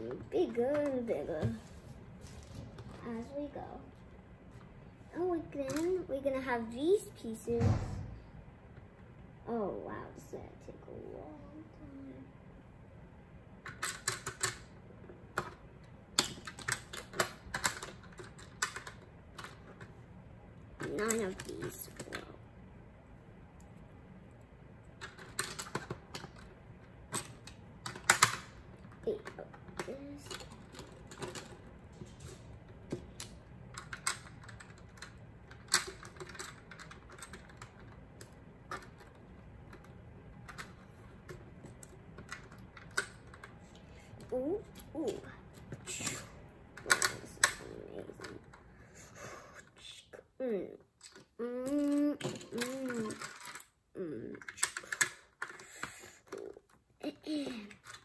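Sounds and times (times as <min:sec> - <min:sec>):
plastic pieces clicking: 0:15.3 - 0:19.9, 0:24.9 - 0:43.6, 0:44.7 - 0:48.6, 0:51.0 - 0:53.7, 0:54.3 - 0:58.0.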